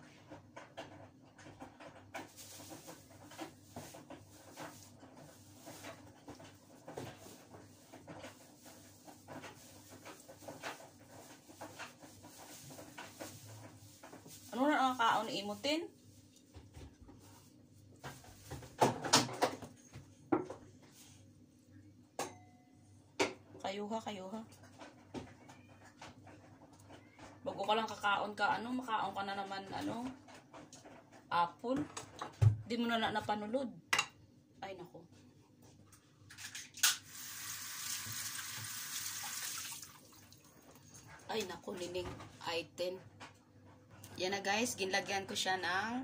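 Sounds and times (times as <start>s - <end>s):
water running from tap: 37.0s - 40.8s.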